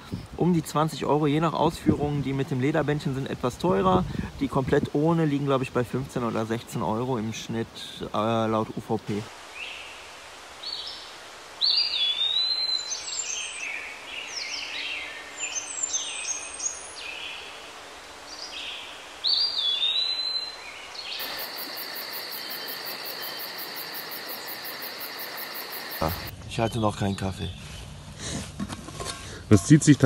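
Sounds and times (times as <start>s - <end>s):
songbird singing: 9.5s - 27.9s
high insect-like chirring: 21.2s - 26.3s.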